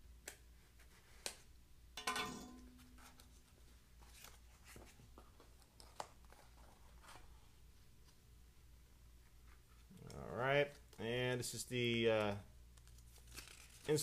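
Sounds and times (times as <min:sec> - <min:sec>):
peeling tape off cardboard box: 0:12.8 - 0:14.0.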